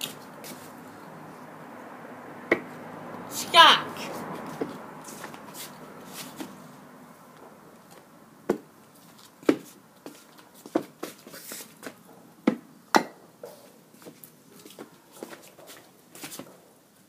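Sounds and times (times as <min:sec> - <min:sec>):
footsteps on wooden decking: 0:07.4 - 0:12.6.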